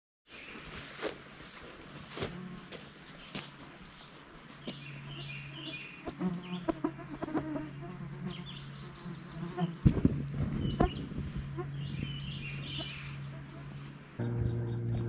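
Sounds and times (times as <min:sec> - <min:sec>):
steady low hum: 0:01.2 - 0:15.0
birds calling and clucking: 0:03.1 - 0:15.0.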